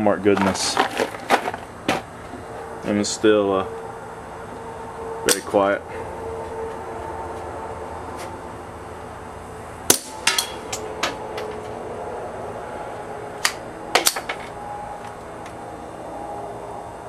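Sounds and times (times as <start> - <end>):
bullets striking target box: 9.9 - 11.2, 13.4 - 14.4.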